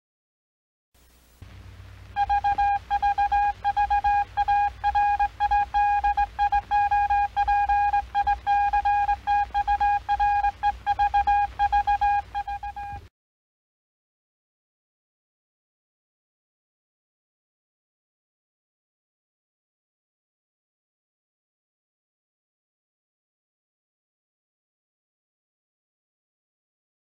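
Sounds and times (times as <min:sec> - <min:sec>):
low hum: 0:01.0 - 0:13.1
morse code beeps: 0:02.2 - 0:13.1.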